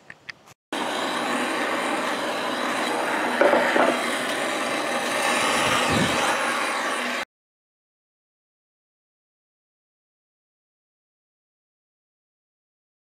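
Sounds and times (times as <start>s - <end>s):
propane torch hissing: 0.8s - 7.3s.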